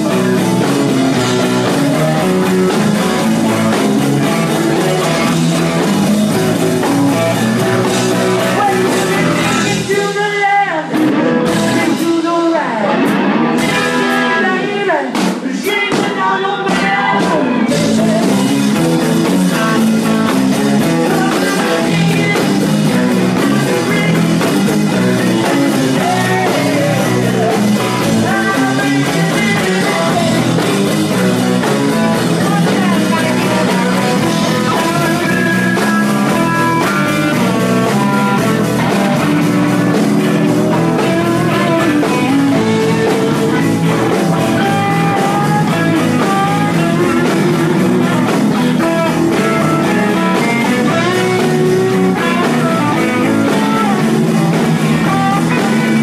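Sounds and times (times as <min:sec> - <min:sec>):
electric guitar lines: 0:00.0 - 0:56.0
live rock band playing: 0:00.0 - 0:56.0.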